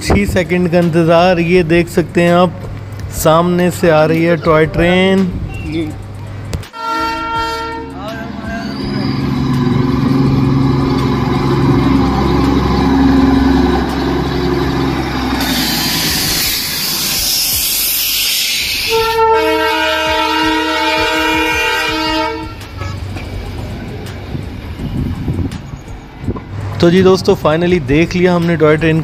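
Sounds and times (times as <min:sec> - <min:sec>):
diesel locomotive engine droning: 0:00.0 - 0:29.0
train horn blast: 0:06.7 - 0:16.5, 0:18.8 - 0:23.3
loud hiss: 0:14.6 - 0:19.2.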